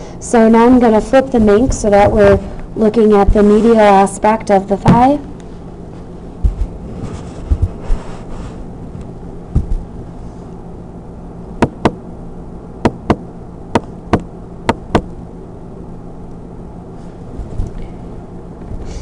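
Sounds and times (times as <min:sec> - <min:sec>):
steady low hum: 0:00.0 - 0:19.0
handling thumps and knocks: 0:01.4 - 0:02.6, 0:04.8 - 0:05.2, 0:09.5 - 0:09.9.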